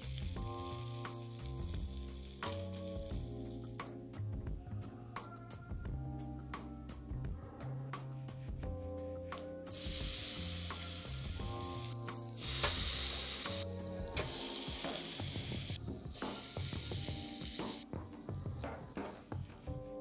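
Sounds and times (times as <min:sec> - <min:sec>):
chops sizzling on a grill: 0:00.0 - 0:03.8, 0:09.7 - 0:19.7
background music: 0:00.0 - 0:20.0.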